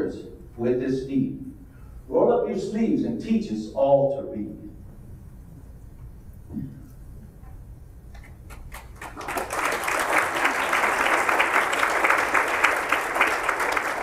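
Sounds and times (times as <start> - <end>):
audience applauding: 8.5 - 14.0.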